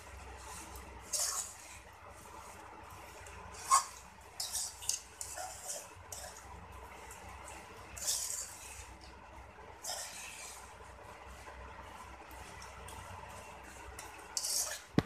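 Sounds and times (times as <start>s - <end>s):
metal spoon scraping metal pan: 0.4s - 1.9s, 3.5s - 6.4s, 8.0s - 8.9s, 9.8s - 10.7s, 14.0s - 15.0s.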